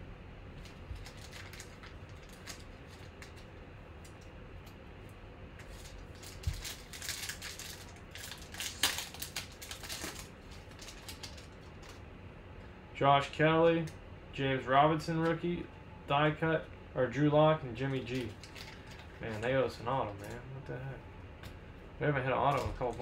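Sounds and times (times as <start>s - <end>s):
foil wrapper crinkling and tearing: 0.6s - 4.3s, 5.6s - 12.0s, 18.0s - 20.4s.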